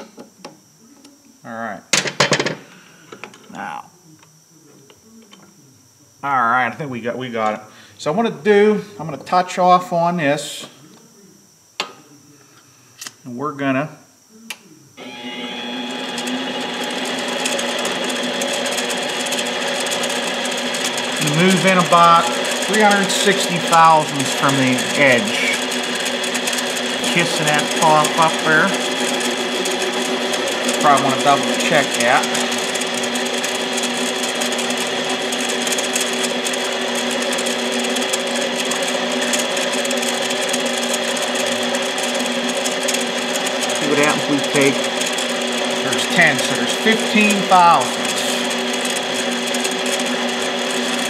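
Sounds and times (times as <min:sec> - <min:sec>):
lathe motor whining: 0:15.0 - 0:51.0.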